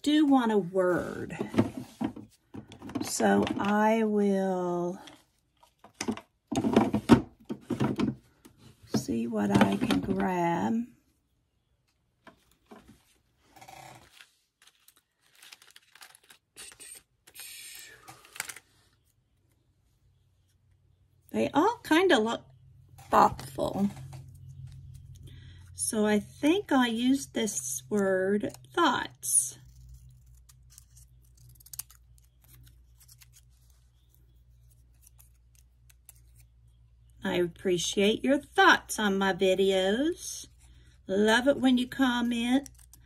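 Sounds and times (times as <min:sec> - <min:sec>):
paper rustling and sliding: 0:14.0 - 0:16.8
low steady hum: 0:20.8 - 0:43.0
scissors snipping paper: 0:29.6 - 0:36.5, 0:42.5 - 0:43.0.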